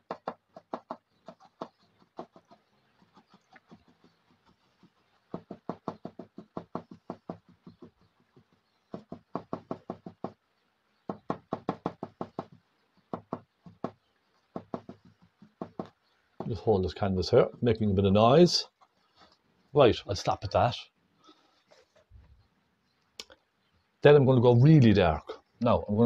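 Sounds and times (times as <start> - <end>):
paintbrush dabbing on canvas: 0.4 - 10.5, 11.1 - 16.6.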